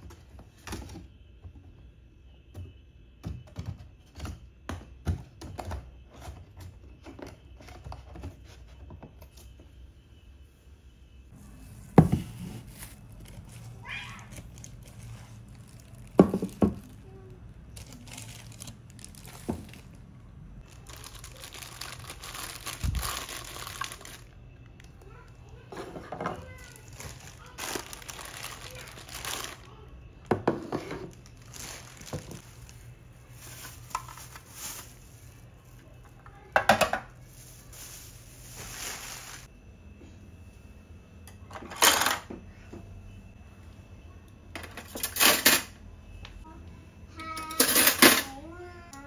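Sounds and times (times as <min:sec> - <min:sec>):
plastic parts clicking and knocking: 0:02.5 - 0:09.2
plastic wrap crinkling: 0:11.7 - 0:25.6, 0:26.4 - 0:30.0, 0:30.9 - 0:36.0, 0:37.1 - 0:39.5.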